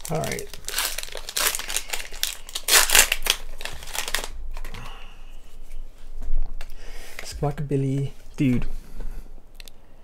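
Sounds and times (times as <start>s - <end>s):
foil wrapper crinkling: 0.0s - 4.8s.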